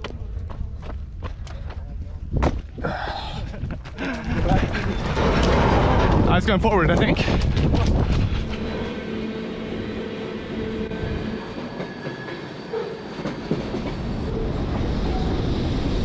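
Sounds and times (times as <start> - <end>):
train wheels rumbling on track: 4.0 - 16.0.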